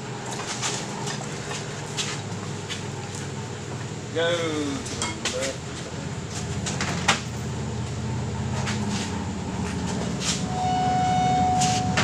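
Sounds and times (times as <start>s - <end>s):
sustained squeal: 10.5s - 12.0s.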